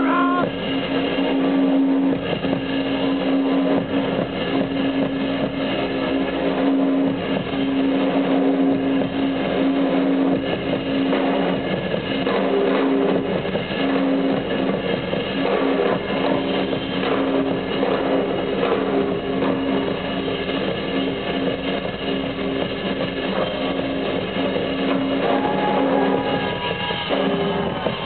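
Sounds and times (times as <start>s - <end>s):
drum kit: 0.0s - 28.0s
guitar: 13.0s - 28.0s.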